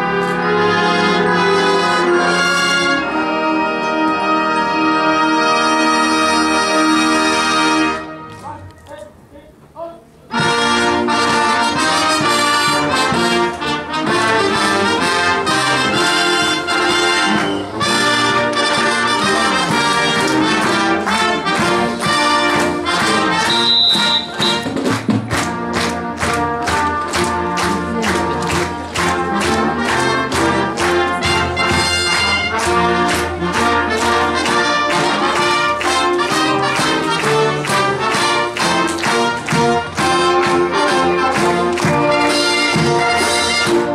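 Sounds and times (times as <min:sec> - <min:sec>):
marching band brass: 0:00.0 - 0:09.6, 0:10.2 - 0:43.9
marching drums beat: 0:15.5 - 0:43.9.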